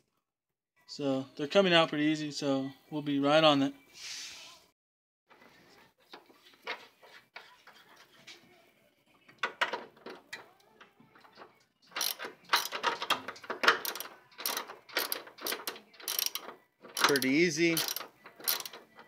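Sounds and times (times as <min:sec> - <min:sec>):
hand ratchet clicking: 0:11.3 - 0:19.0.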